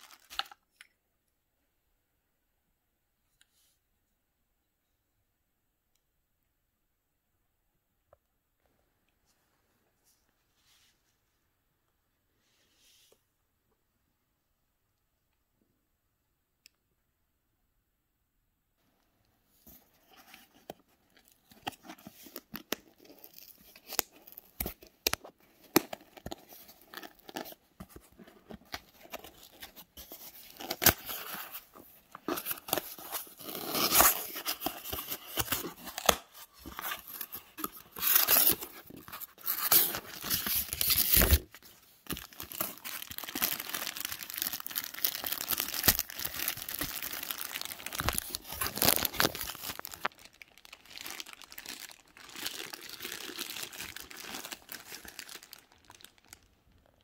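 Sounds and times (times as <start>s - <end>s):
cardboard and paper tearing: 32.2s - 41.4s.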